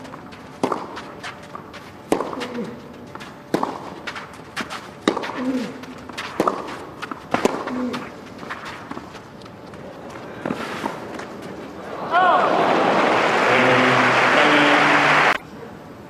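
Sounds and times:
racquet striking tennis ball: 0.0s - 9.8s
shoes scuffing on clay: 0.0s - 11.8s
player grunting: 5.4s - 5.8s.

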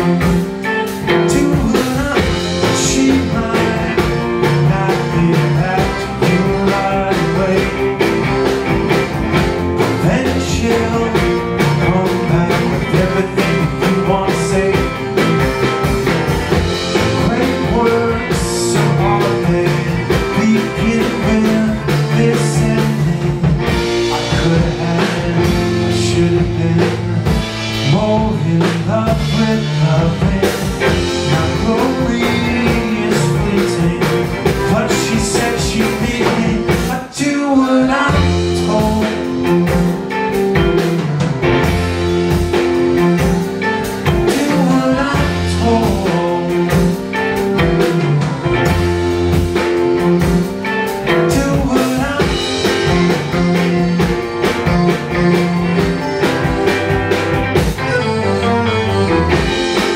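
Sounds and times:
bass guitar: 0.0s - 59.9s
electric guitar: 0.0s - 59.9s
steady drum beat: 0.0s - 59.9s
accordion: 38.1s - 59.9s.

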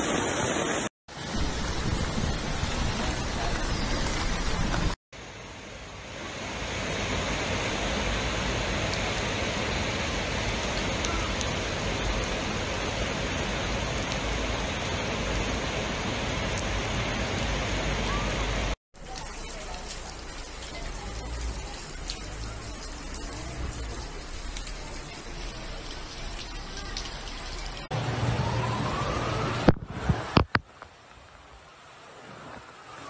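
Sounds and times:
floodwater rushing: 0.0s - 33.0s
heavy rain: 0.0s - 33.0s.

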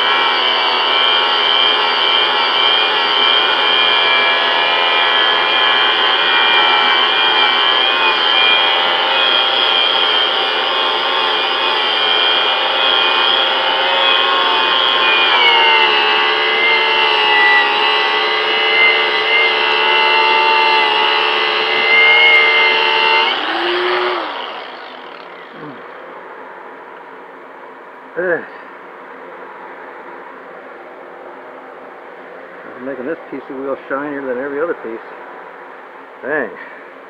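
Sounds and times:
grinder winding down: 0.0s - 26.8s
angle grinder whining: 0.0s - 27.4s.

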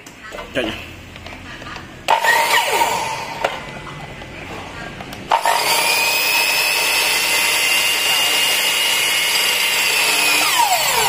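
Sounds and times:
miter saw motor whining: 2.1s - 3.5s, 5.3s - 11.0s.

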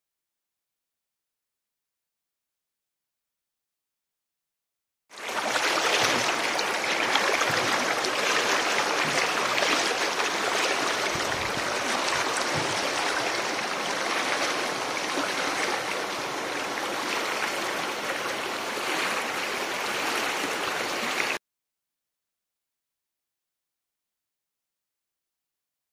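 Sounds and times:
stream rushing over stones: 5.2s - 21.4s.

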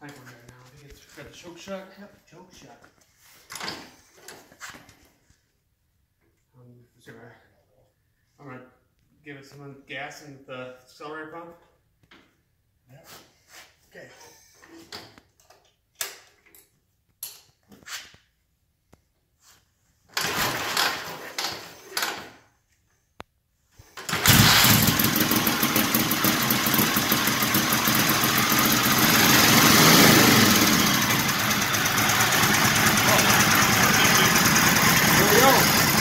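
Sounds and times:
motorcycle engine running: 24.1s - 36.0s.

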